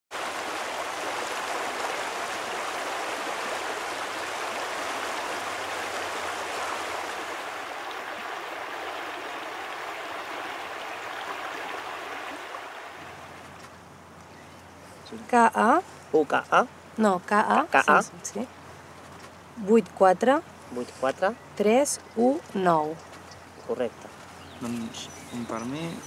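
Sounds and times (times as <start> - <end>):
river flowing over riffles: 0.1 - 14.2.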